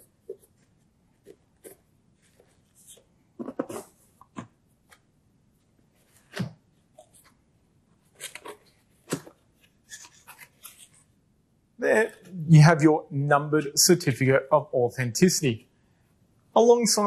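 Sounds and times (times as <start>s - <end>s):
cardboard sleeve scraping and rustling: 8.0s - 11.1s.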